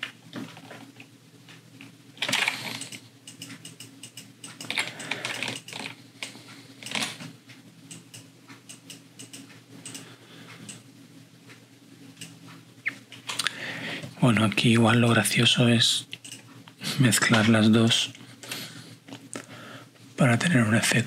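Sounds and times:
computer keyboard keystrokes: 0:02.2 - 0:05.9, 0:07.9 - 0:10.0.

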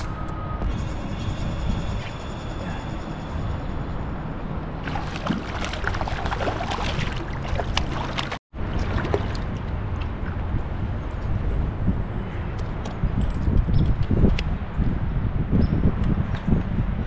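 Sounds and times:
fish splashing in water: 0:04.8 - 0:09.6.

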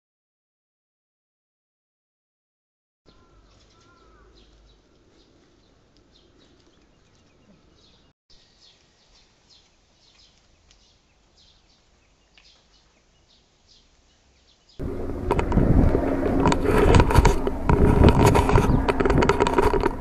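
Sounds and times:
faint bird chirps: 0:03.1 - 0:14.8
helicopter flying overhead: 0:14.8 - 0:20.0.

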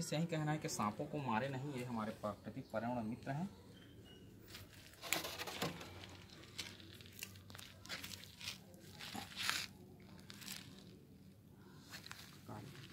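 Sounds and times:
plastic water bottle crinkling: 0:04.6 - 0:11.0.

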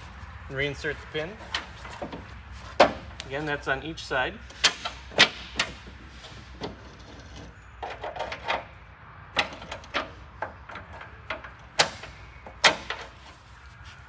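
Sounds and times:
metal clicks and clanks: 0:06.6 - 0:13.3.

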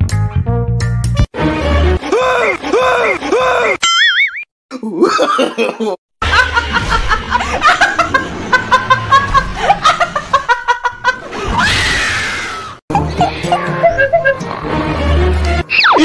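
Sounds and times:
background music with bass: 0:00.0 - 0:02.0
woman laughing hard: 0:05.0 - 0:11.4, 0:12.9 - 0:14.5.

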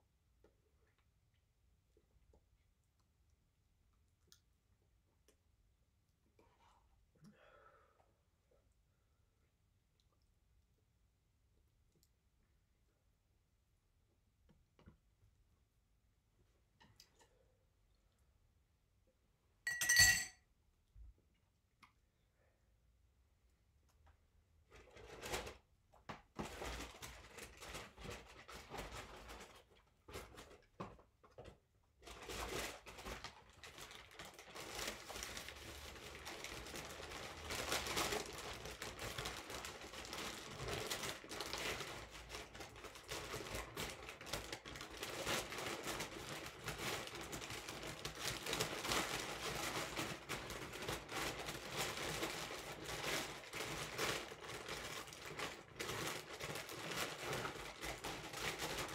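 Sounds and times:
paper bag crinkling and rustling: 0:24.7 - 0:58.9.

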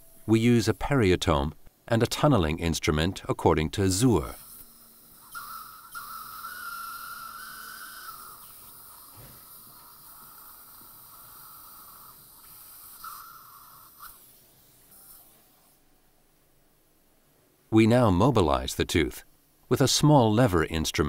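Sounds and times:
dental suction hissing: 0:04.1 - 0:15.4.

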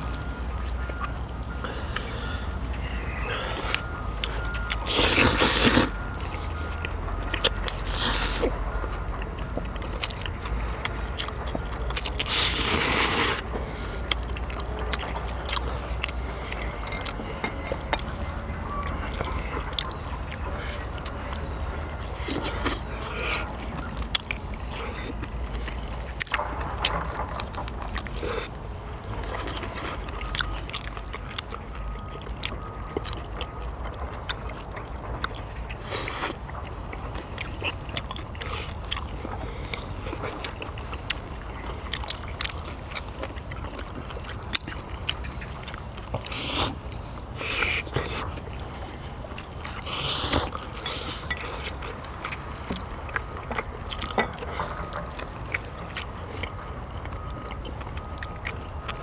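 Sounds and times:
slurping: 0:00.0 - 0:08.7, 0:09.9 - 0:59.0
people chewing: 0:00.0 - 0:59.0.

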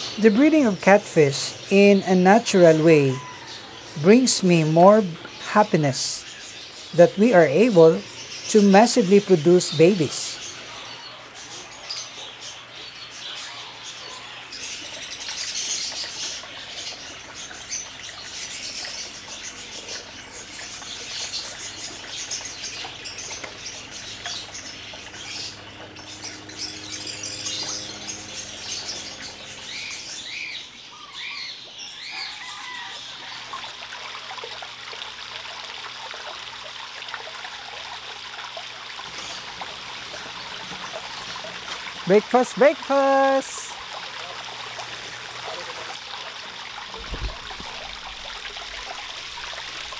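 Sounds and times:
birds chirping: 0:00.0 - 0:49.9
fish splashing in water: 0:32.2 - 0:42.2, 0:43.6 - 0:49.9.

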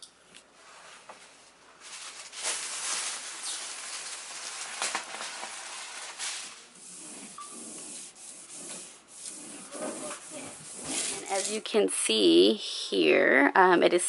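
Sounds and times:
wallpaper rustling: 0:00.6 - 0:11.8.

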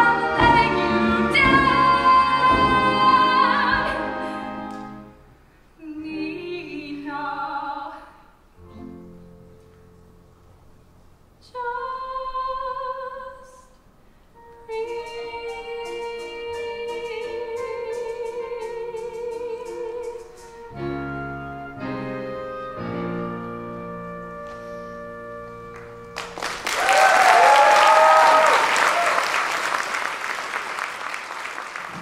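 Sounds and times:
woman singing with vibrato: 0:00.0 - 0:05.0, 0:05.8 - 0:08.3, 0:11.4 - 0:13.7, 0:14.7 - 0:20.5
ticking accompaniment: 0:14.4 - 0:23.0
audience applauding and cheering: 0:25.7 - 0:32.0.

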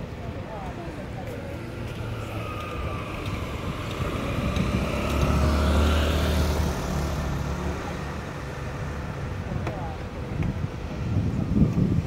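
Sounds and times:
vehicle engine driving past: 0:01.6 - 0:09.1.

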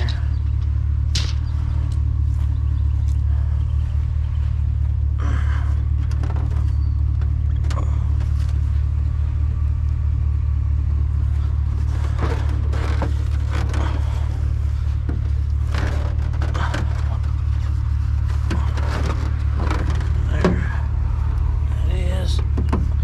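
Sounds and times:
truck engine idling: 0:00.0 - 0:23.0
knocks: 0:22.4 - 0:23.0.

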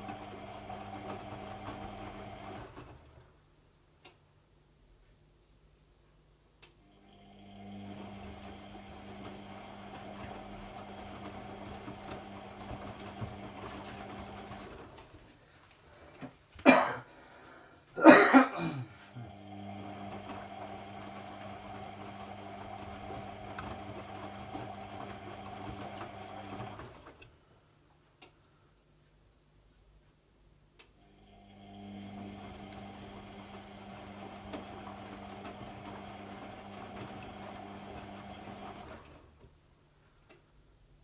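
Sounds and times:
washing machine drum humming: 0:00.0 - 0:03.3, 0:07.0 - 0:15.2, 0:18.6 - 0:27.2, 0:31.1 - 0:39.4
person coughing: 0:16.6 - 0:17.2, 0:18.0 - 0:19.1.

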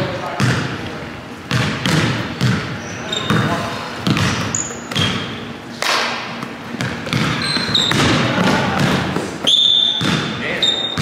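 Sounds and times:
basketball bouncing on wood floor: 0:00.4 - 0:00.7, 0:01.5 - 0:05.2, 0:06.8 - 0:09.2, 0:09.9 - 0:11.0
sneaker squeaks: 0:01.5 - 0:05.6, 0:06.8 - 0:11.0.

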